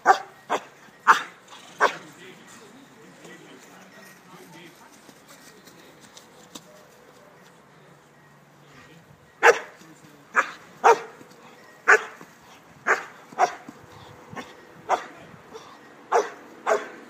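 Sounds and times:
dog barking: 0.0s - 2.0s, 9.4s - 9.7s, 10.4s - 11.2s, 11.9s - 12.2s, 12.9s - 13.6s, 16.1s - 17.0s.

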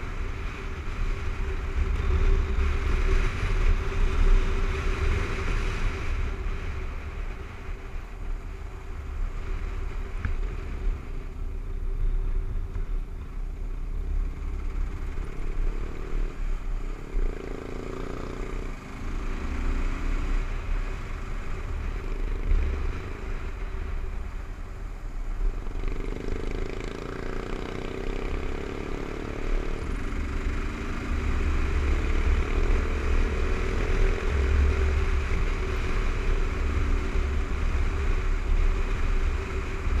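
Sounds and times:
motorcycle engine revving: 13.9s - 23.9s, 25.6s - 40.0s.

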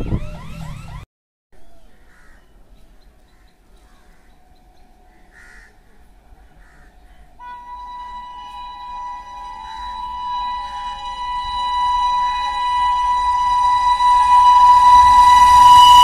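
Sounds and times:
crows cawing: 1.9s - 2.5s, 5.0s - 6.0s, 6.6s - 7.4s
steady pitched tone: 5.9s - 16.0s.

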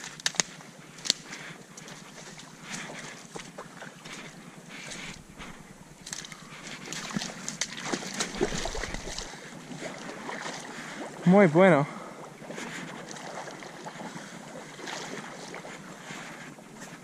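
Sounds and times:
sharp twig snaps: 0.0s - 1.2s
branches crackling underfoot: 0.0s - 9.4s.

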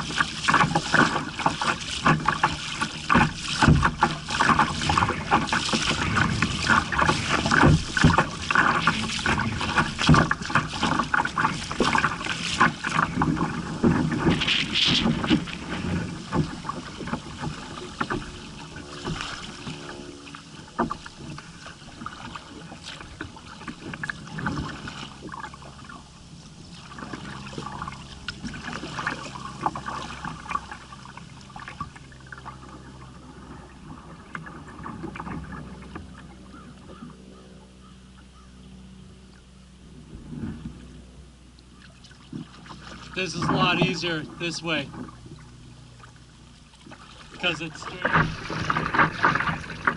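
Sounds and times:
water splashing against kayak hull: 0.0s - 49.9s
wind buffeting microphone: 1.8s - 19.9s.

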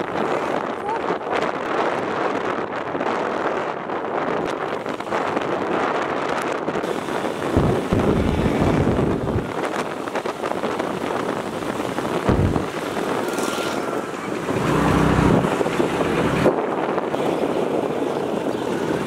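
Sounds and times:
road noise: 0.0s - 19.0s
wind rushing over microphone: 0.0s - 19.0s
scooter engine hum: 6.8s - 19.0s.

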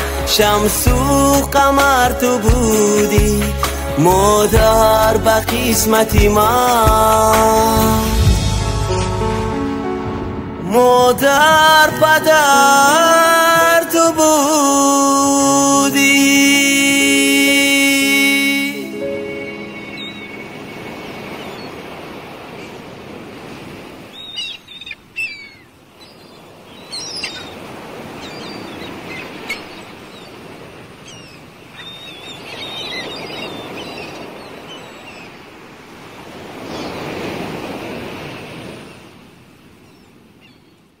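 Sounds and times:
sea waves washing in: 0.0s - 40.6s
birds chirping: 17.7s - 37.6s, 39.8s - 40.9s.

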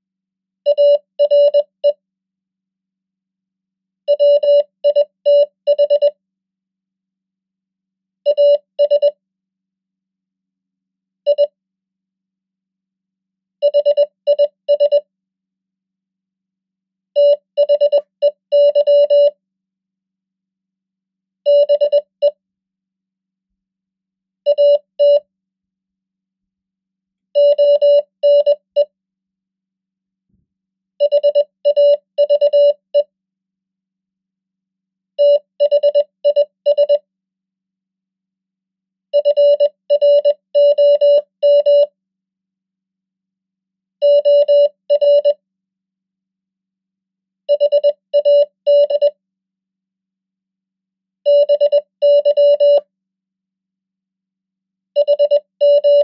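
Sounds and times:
morse code beeps: 0.7s - 2.0s, 17.2s - 19.4s, 27.4s - 28.9s, 31.0s - 33.1s, 35.2s - 37.0s, 39.2s - 41.9s, 44.0s - 45.4s, 47.5s - 49.2s, 51.3s - 52.8s, 55.0s - 56.0s.

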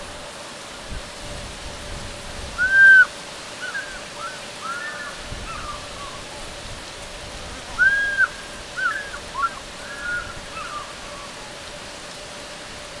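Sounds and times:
distant eagle calling: 2.6s - 6.5s, 7.6s - 11.6s.

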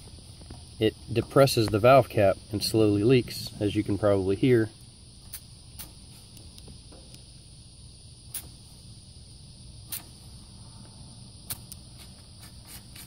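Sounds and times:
faint hiss of leaking gas: 0.0s - 13.0s
high-pitched insect buzz: 2.6s - 13.0s.

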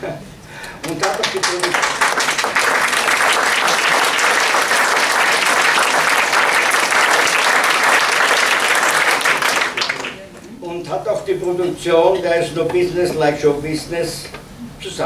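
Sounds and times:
audience applause: 0.8s - 10.3s.

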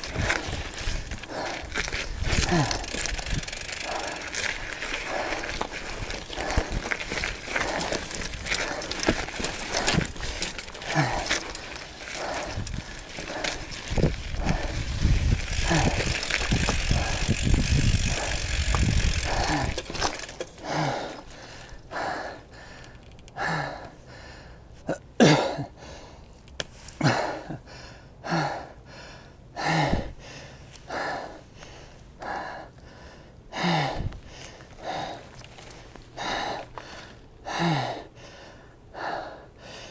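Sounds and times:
mountain bike rattling over rocks: 0.0s - 21.9s, 34.4s - 37.1s
rider breathing hard: 0.0s - 24.7s, 25.8s - 39.9s.

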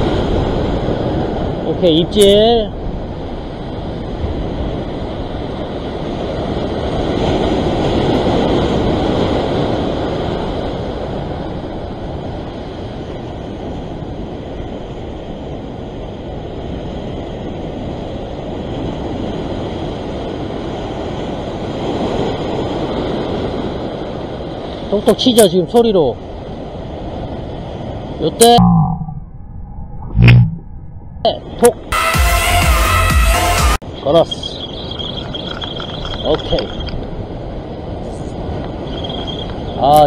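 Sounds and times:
sea surf rushing against rocks: 0.0s - 15.6s
wind rumbling on microphone: 0.0s - 25.2s, 25.9s - 32.0s, 33.8s - 40.0s.

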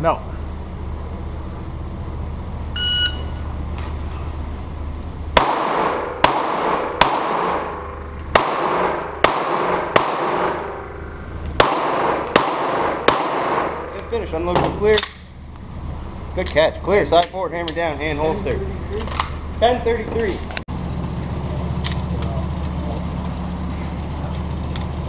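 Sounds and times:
shot timer beep: 2.8s - 3.4s
pistol shots echoing indoors: 5.4s - 14.0s.

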